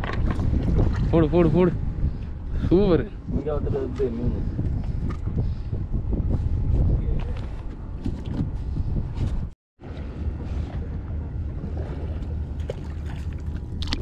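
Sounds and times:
boat engine rumble: 0.0 - 14.0
wind buffeting microphone: 0.0 - 14.0.

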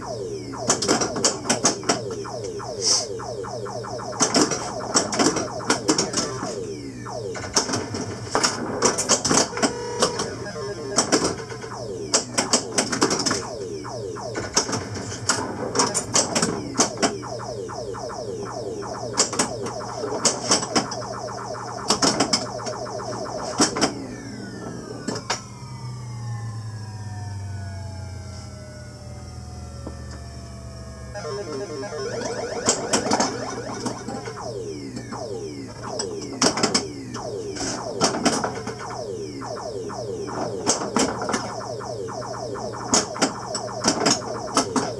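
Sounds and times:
electronic sound effects: 0.0 - 26.5, 31.1 - 44.9
falling tones over low hum: 0.0 - 44.9.

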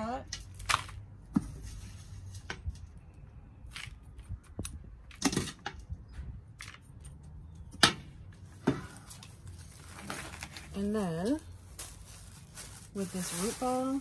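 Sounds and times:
soil rustling and scraping: 0.4 - 3.0, 8.8 - 14.0.

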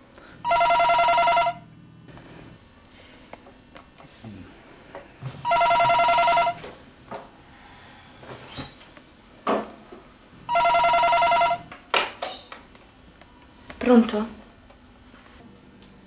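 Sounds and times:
telephone ringing: 0.4 - 1.7, 5.4 - 6.7, 10.5 - 11.7.

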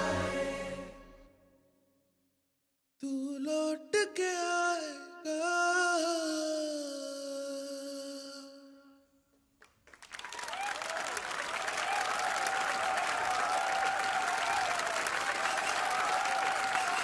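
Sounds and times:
audience applause: 9.8 - 17.0.

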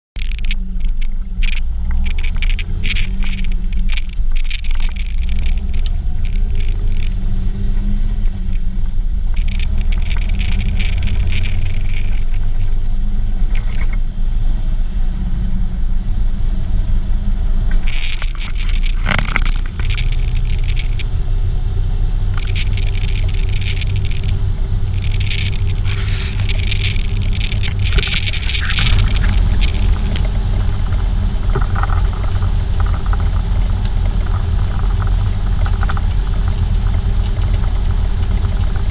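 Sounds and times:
vehicle driving rumble: 0.1 - 38.9
scraping hissing noise: 22.4 - 30.9.

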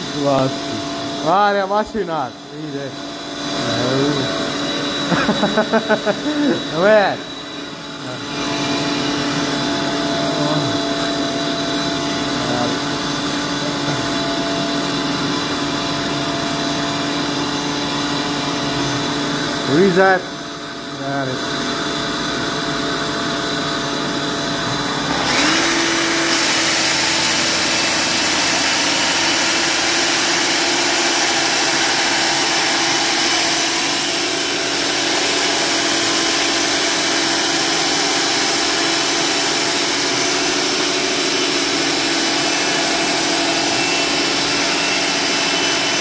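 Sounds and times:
engine revving up: 24.9 - 29.2.

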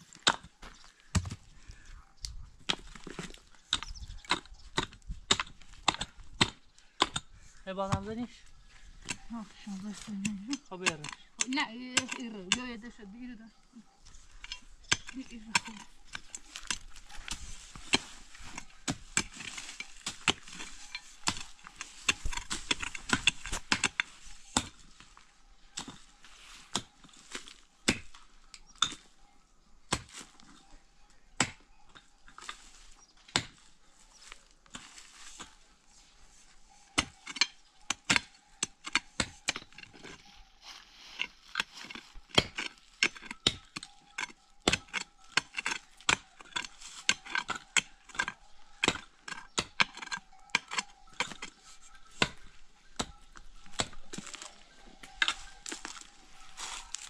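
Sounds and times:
hand tool striking wood: 2.7 - 8.2, 10.0 - 12.7, 14.4 - 28.2, 36.4 - 57.0.

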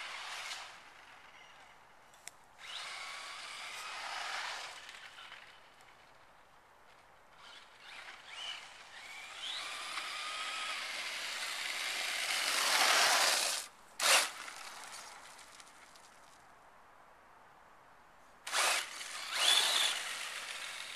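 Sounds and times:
electric motor whining: 18.5 - 20.9.

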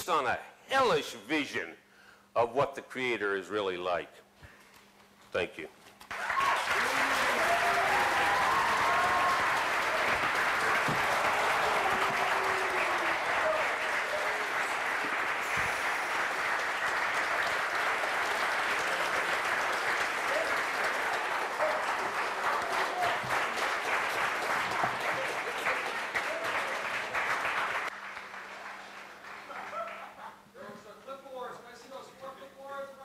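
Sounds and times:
large audience applauding: 6.1 - 30.2.

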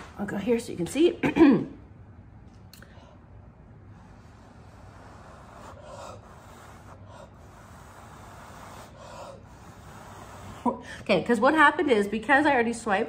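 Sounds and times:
breathy puffs of breath: 2.8 - 11.1.

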